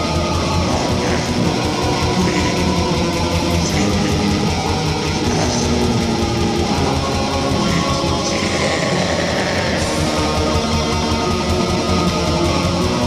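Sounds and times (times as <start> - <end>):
bass guitar: 0.0 - 13.0
electric guitars strumming: 0.0 - 13.0.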